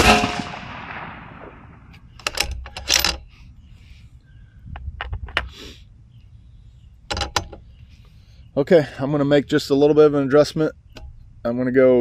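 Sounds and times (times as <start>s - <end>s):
rifle shot with echo: 0.0s - 2.1s
rifle bolt clicking: 2.2s - 3.2s.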